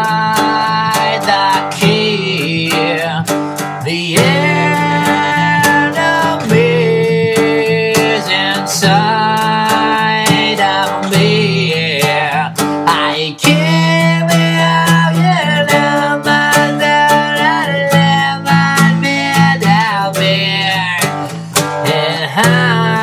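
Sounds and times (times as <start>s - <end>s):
acoustic guitar strumming: 0.0s - 23.0s
man singing mumbled words: 21.9s - 23.0s.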